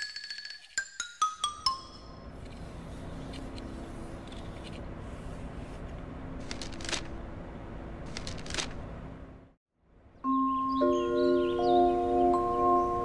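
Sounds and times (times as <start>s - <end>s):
book pages rustling: 2.4s - 7.2s, 8.1s - 8.8s.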